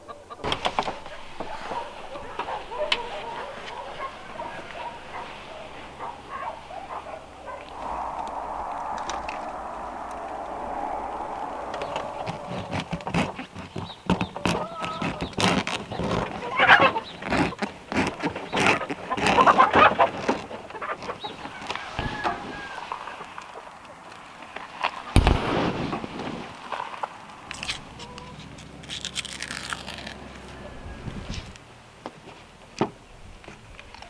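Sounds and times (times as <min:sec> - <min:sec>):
steady rushing noise: 0:00.5 - 0:13.8.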